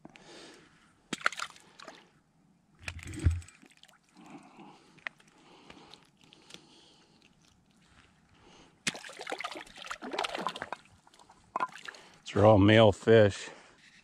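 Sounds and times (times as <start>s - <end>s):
fish splashing in water: 1.1s - 2.0s, 8.8s - 12.2s.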